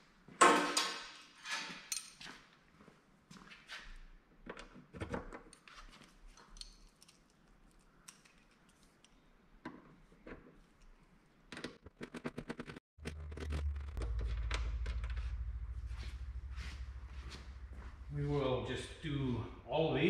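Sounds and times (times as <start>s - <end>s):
low steady hum: 13.0s - 20.0s.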